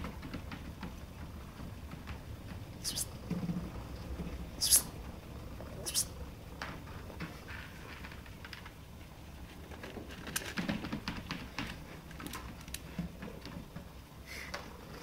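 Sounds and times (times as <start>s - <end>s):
treadmill motor hum: 0.0s - 15.0s.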